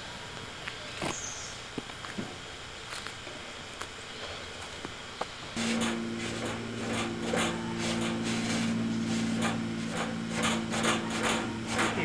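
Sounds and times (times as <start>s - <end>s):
steady low hum: 0.0s - 12.0s
rubbing and scraping strokes: 5.6s - 12.0s.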